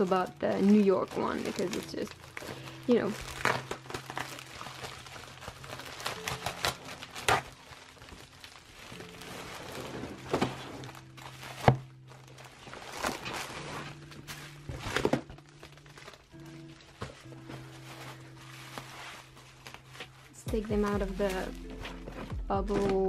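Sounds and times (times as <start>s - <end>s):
bubble wrap rustling and crinkling: 0.0s - 23.0s
packages thumping down: 9.2s - 16.2s.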